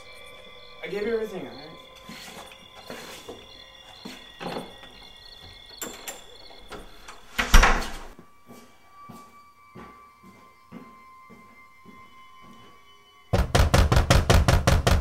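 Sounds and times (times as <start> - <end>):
wooden door slamming: 7.4 - 8.1, 13.4 - 15.0.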